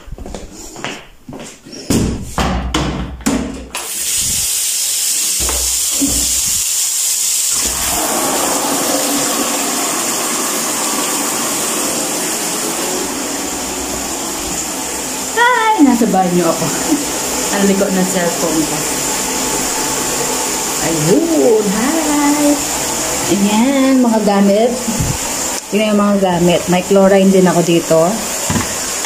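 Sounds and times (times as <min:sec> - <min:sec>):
water running into bucket: 0:03.8 - 0:29.0
plastic bucket knocks: 0:28.4 - 0:28.8.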